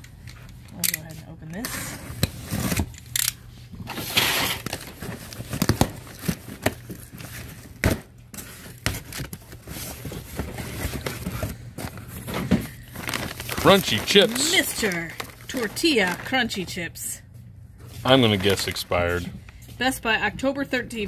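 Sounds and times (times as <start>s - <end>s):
cardboard flaps scraping: 3.8s - 16.3s
cardboard box tearing: 3.9s - 11.5s, 12.3s - 16.1s.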